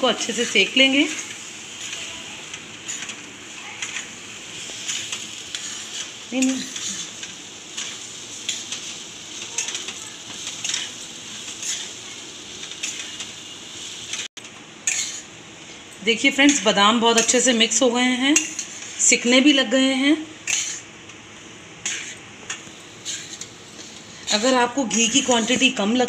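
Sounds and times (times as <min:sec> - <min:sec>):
ghee sizzling softly: 0:00.0 - 0:26.0
spoon scraping a steel pan: 0:14.8 - 0:15.3, 0:18.4 - 0:18.9, 0:20.4 - 0:20.9, 0:21.8 - 0:22.2, 0:23.0 - 0:23.5, 0:24.2 - 0:25.8.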